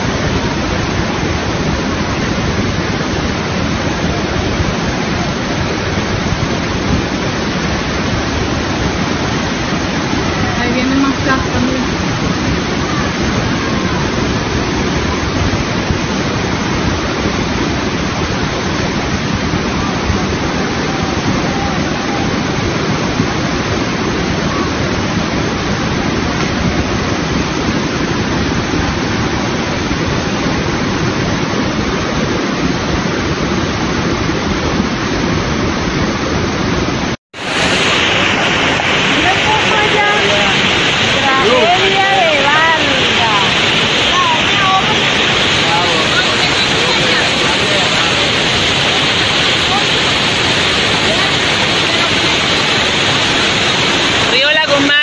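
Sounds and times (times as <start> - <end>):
flood water rushing: 0.0 - 55.0.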